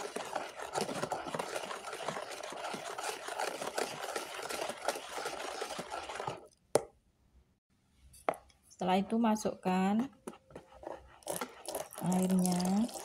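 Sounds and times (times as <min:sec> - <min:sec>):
wire whisk beating batter in bowl: 0:00.0 - 0:06.5, 0:10.3 - 0:13.0.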